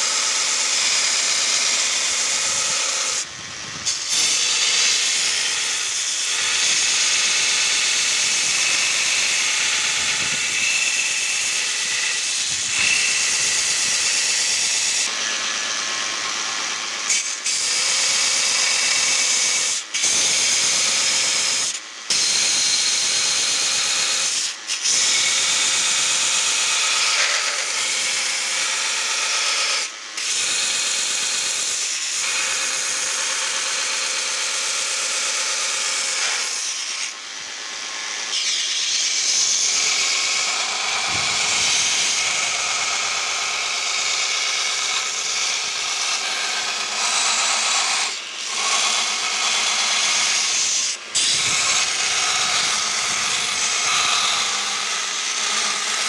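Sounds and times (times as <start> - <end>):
belt grinder grinding steel: 0.0 - 56.0.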